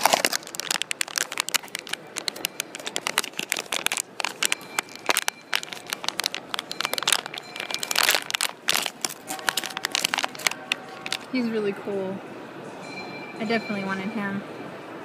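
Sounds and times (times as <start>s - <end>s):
foil pouch crinkling: 0.0s - 11.4s.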